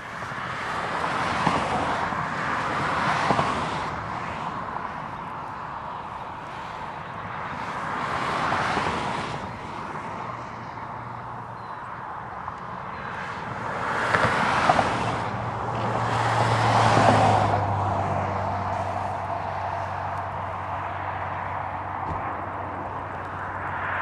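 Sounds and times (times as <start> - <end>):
diesel locomotive engine hum: 0.0 - 24.0.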